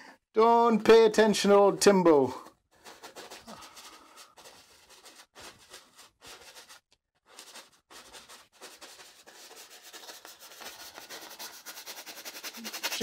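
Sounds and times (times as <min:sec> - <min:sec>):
paintbrush scrubbing on canvas: 0:02.7 - 0:13.0.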